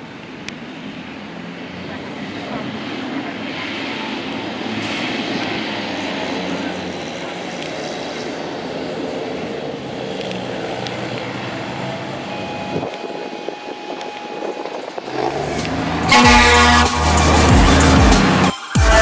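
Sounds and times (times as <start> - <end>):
fire engine diesel engine passing: 0.0 - 18.6
held horn tone: 11.9 - 19.0
loud electronic dance music: 16.0 - 19.0.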